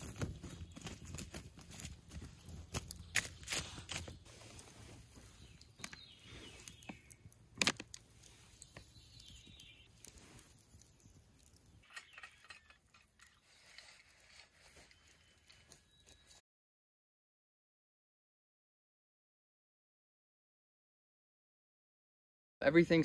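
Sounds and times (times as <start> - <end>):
campfire crackling: 0.0 - 16.4
fire pops and snaps: 0.0 - 16.4.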